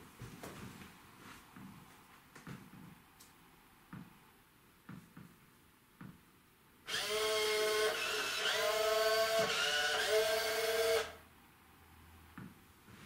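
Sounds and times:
robot wheel motors whining: 0:06.9 - 0:11.2.

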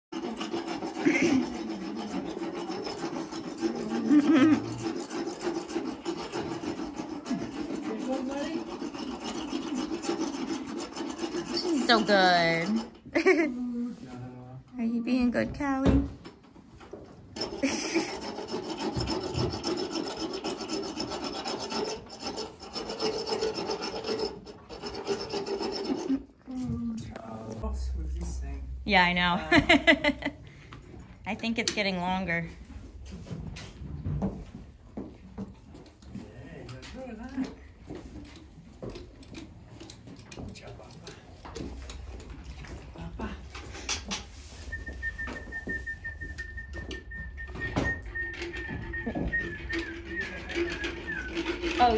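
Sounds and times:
dental float rasping teeth: 0:00.1 - 0:13.0, 0:17.4 - 0:26.3, 0:43.6 - 0:51.9.

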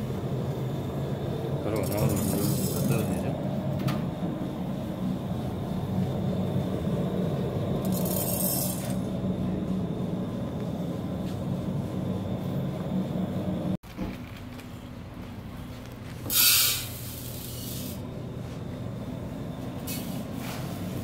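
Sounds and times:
stone mill humming: 0:00.0 - 0:13.8
brief hiss: 0:16.3 - 0:18.0.

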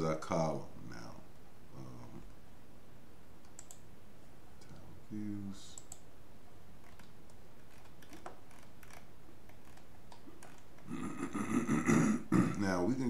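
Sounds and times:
background hiss: 0:00.0 - 0:13.0
computer mouse clicks: 0:03.4 - 0:03.9, 0:05.7 - 0:06.1, 0:06.8 - 0:10.9.

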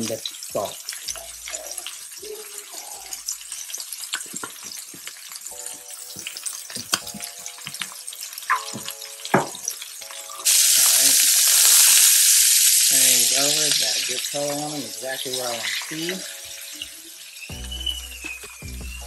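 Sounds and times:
chicken sizzling in hot oil: 0:00.0 - 0:19.0.

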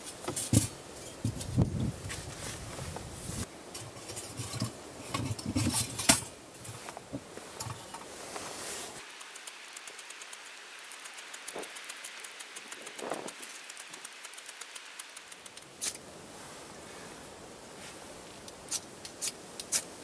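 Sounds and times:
metal camp stove clinking: 0:03.7 - 0:06.8
stove hiss with faint ticks: 0:07.6 - 0:16.0.

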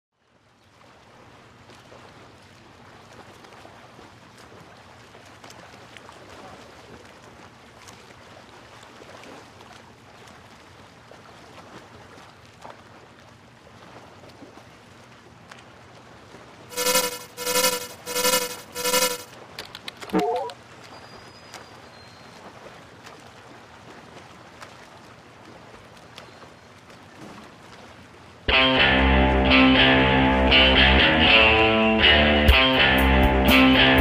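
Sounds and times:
low hum: 0:16.7 - 0:19.3.

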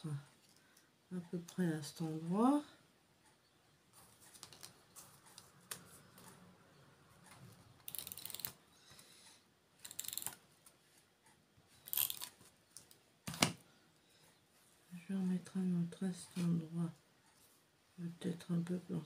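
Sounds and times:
tape roller ratchet clicking: 0:07.9 - 0:08.6, 0:09.8 - 0:10.4, 0:11.9 - 0:12.3.

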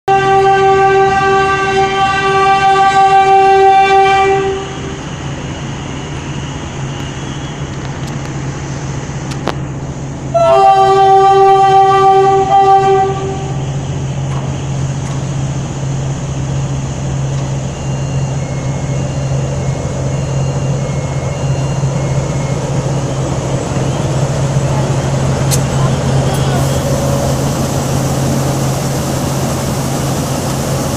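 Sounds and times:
locomotive horn blasts: 0:00.0 - 0:05.0, 0:10.3 - 0:13.7
diesel engine low hum: 0:12.5 - 0:30.9.

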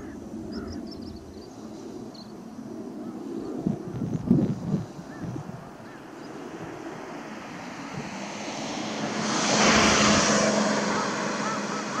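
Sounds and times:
aircraft engine hum: 0:00.0 - 0:12.0.

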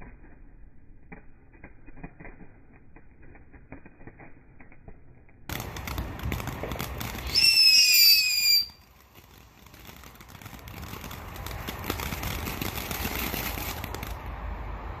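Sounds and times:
firework sparks hissing and crackling: 0:00.0 - 0:15.0
firework whistle: 0:06.8 - 0:14.1.

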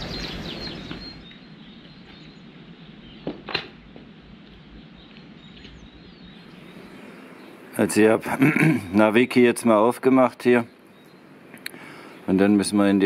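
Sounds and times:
faint high bird chirps: 0:00.0 - 0:03.9, 0:04.5 - 0:07.8.

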